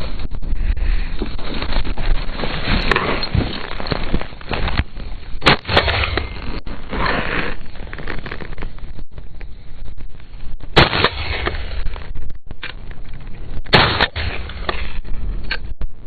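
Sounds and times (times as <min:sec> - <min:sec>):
shotgun shots: 0:05.4 - 0:06.4, 0:10.7 - 0:11.8, 0:13.7 - 0:15.0.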